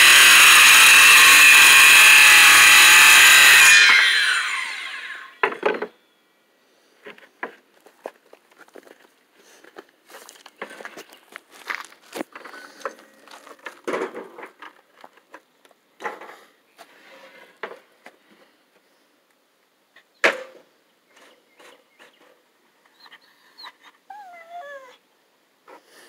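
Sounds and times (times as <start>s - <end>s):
dog whining: 22.9s - 25.0s.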